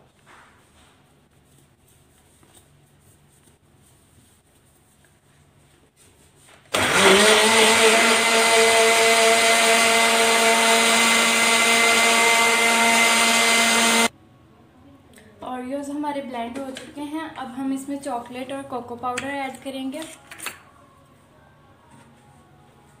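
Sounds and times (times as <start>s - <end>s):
blender motor whine: 6.7s - 14.1s.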